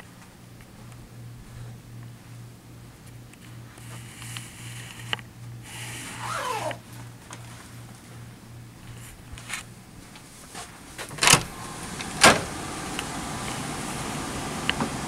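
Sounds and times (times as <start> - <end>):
ventilation air rushing: 0.0 - 15.0
door clunking shut: 11.0 - 12.6.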